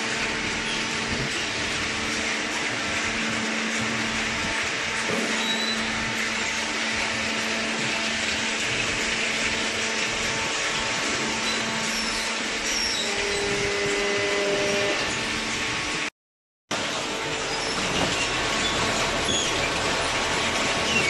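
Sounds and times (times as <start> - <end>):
industrial machinery hiss and hum: 0.0 - 16.1
steady machine tones: 0.0 - 16.1.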